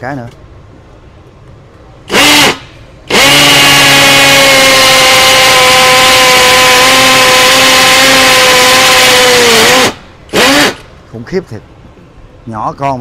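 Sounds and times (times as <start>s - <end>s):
hammer drill drilling concrete: 2.1s - 10.8s.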